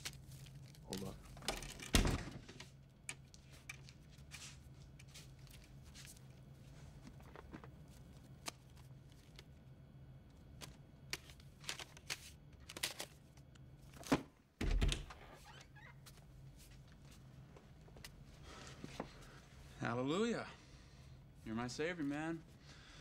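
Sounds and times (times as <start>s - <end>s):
book handling clicks and rustles: 0.0s - 1.9s, 7.0s - 9.6s, 10.3s - 14.3s
low room hum: 0.0s - 23.0s.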